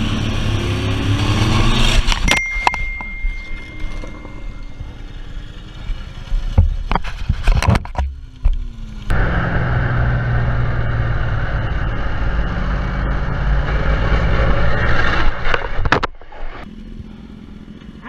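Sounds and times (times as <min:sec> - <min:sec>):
motorcycle engine running: 0:00.0 - 0:14.6, 0:16.6 - 0:18.0
thin steady high tone: 0:02.3 - 0:05.6
knocks and clatter: 0:06.3 - 0:08.6.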